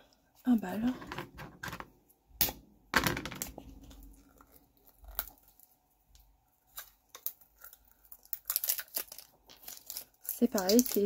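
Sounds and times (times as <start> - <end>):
plastic wrapper crinkling: 3.8 - 11.0.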